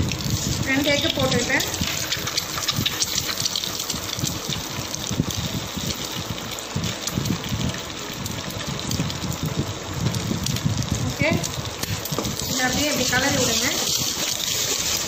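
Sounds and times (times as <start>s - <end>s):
eggs sizzling in oil: 0.0s - 15.0s.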